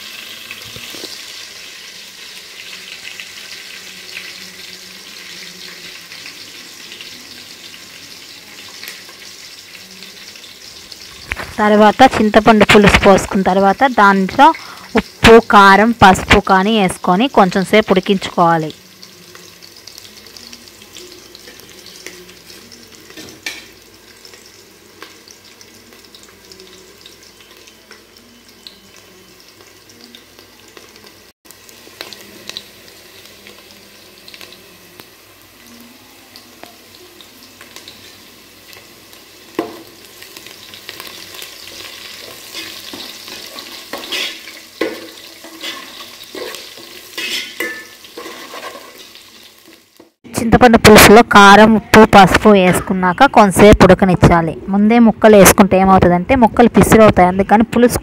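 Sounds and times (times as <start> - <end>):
broth simmering with faint sizzle: 0.0 - 58.0
metal ladle scraping a pot: 42.4 - 49.1.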